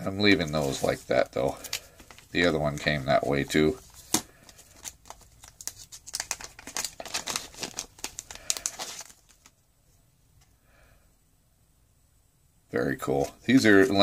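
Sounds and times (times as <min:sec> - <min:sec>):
plastic bag crinkling: 0:00.4 - 0:09.6.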